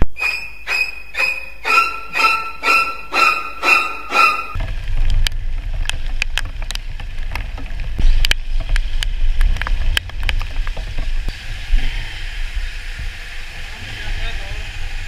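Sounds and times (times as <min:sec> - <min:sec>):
raindrops ticking on camera: 0:04.6 - 0:11.3
motorcycle riding: 0:04.6 - 0:15.0.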